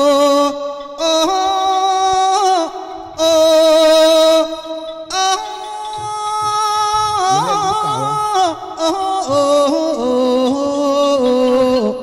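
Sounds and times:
person singing unaccompanied: 0:00.0 - 0:12.0.

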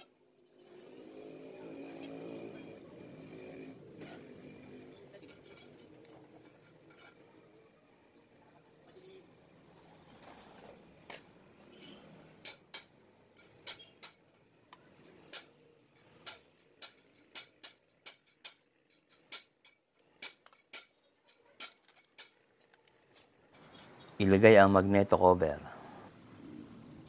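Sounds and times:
hand tools clicking on metal: 0:12.4 - 0:23.4.

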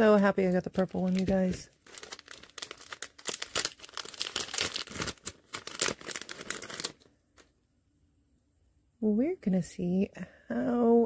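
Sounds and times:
plastic bag crinkling: 0:00.3 - 0:07.5.

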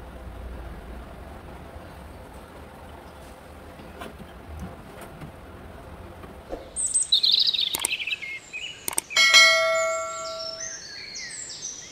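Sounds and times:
mouse clicks: 0:07.7 - 0:08.1, 0:08.9 - 0:09.2
bell ding: 0:09.2 - 0:10.8
high sparkling chimes: 0:09.2 - 0:10.8.

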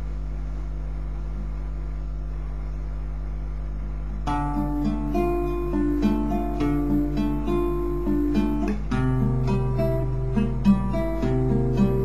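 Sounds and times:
steady low hum: 0:00.0 - 0:12.0
classical guitar picked notes: 0:04.2 - 0:12.0.

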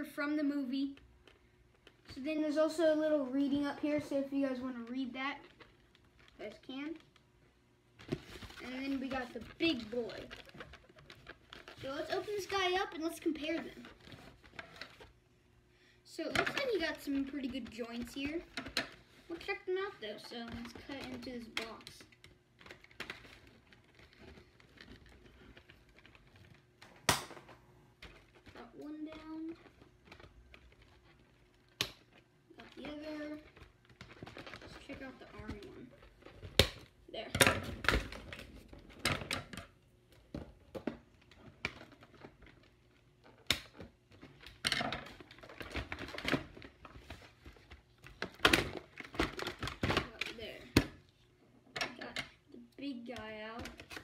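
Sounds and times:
scraping and crinkling: 0:00.7 - 0:15.2, 0:16.2 - 0:54.0
cardboard packaging rustling: 0:08.0 - 0:15.2, 0:16.3 - 0:36.8
ticks and rustles: 0:08.0 - 0:15.2.

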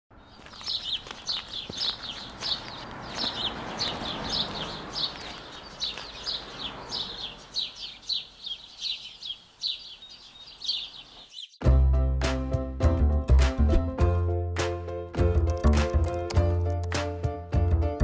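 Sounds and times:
small birds chirping: 0:00.1 - 0:11.6.

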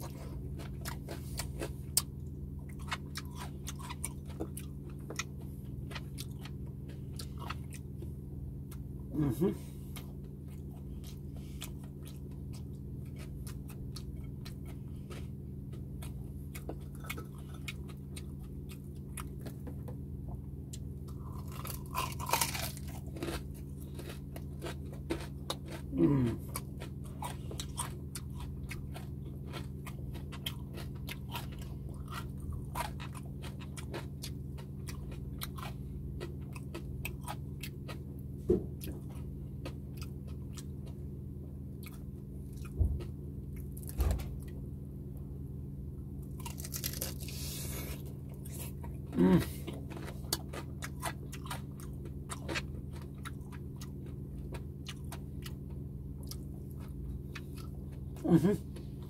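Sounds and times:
chewing and crunching: 0:00.0 - 0:44.7, 0:46.1 - 0:59.0
low hum: 0:00.0 - 0:59.0
person humming: 0:09.1 - 0:09.8, 0:25.9 - 0:26.5, 0:49.1 - 0:49.6, 0:58.2 - 0:58.7.

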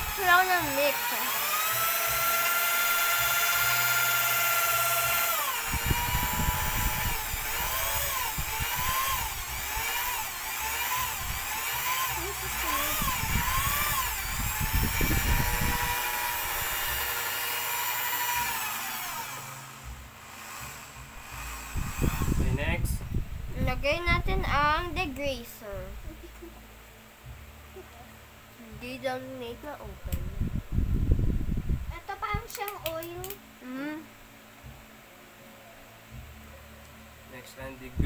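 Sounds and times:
electric drill mixing soap: 0:00.0 - 0:22.8.

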